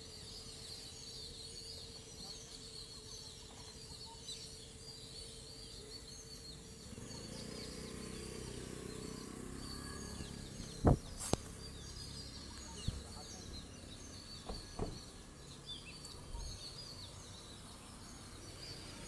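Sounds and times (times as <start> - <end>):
small birds chirping: 0.0 - 19.0
steady outdoor hum: 0.0 - 19.0
sharp knocks: 10.8 - 11.1, 14.4 - 15.1.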